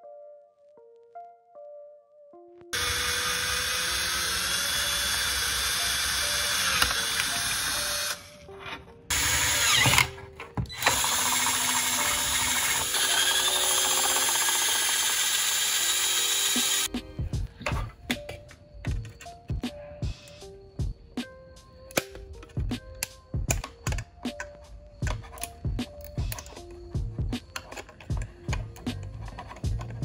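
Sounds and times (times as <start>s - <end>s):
drill boring through plastic: 2.8s - 8.4s, 9.1s - 16.9s.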